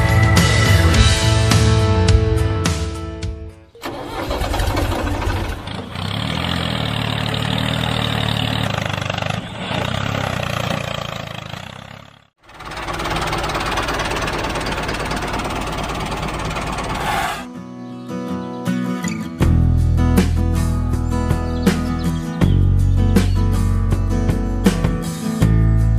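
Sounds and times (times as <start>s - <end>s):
tractor engine running: 3.8s - 17.5s.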